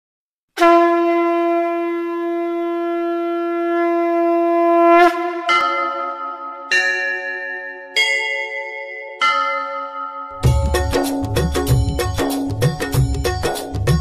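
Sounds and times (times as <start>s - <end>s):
conch shell blown: 0.6s - 6.6s
bell ringing: 5.5s - 13.2s.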